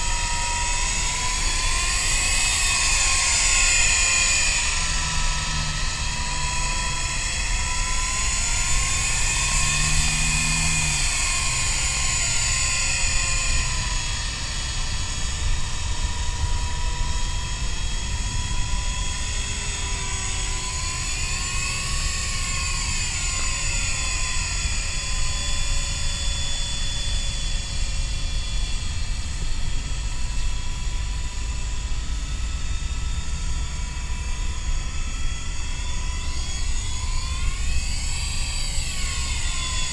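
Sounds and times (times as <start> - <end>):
rc helicopter motor whining: 0.0 - 39.9.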